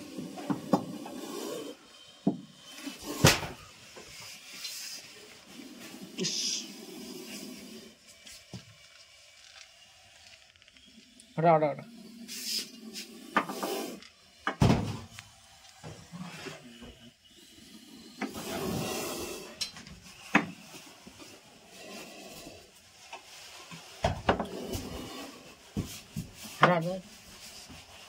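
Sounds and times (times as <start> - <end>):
objects knocking and scraping: 0.0 - 5.5, 19.5 - 26.9.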